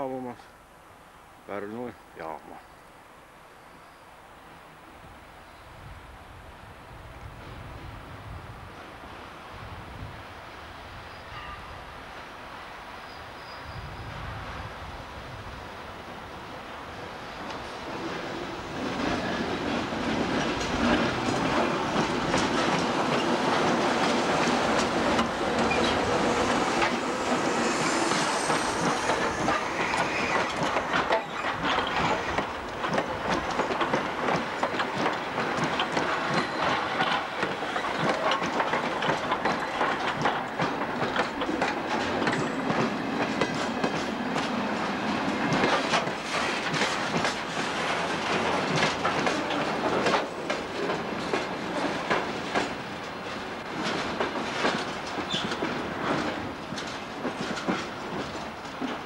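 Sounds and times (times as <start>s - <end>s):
train wheels clacking over rail joints: 17.4s - 59.0s
wagons rattling: 29.0s - 37.2s.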